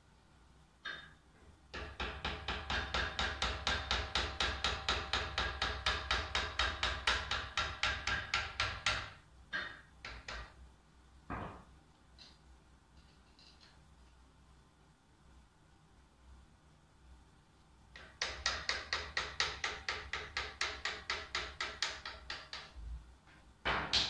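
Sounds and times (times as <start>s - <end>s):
hammer tapping on ringing steel: 0.8s - 1.2s, 1.8s - 10.5s.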